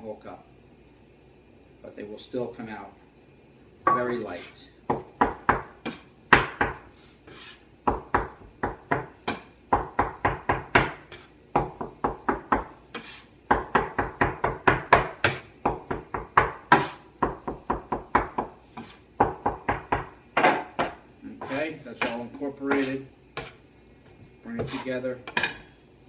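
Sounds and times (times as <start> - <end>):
scraper chopping on wooden board: 16.4 - 23.6.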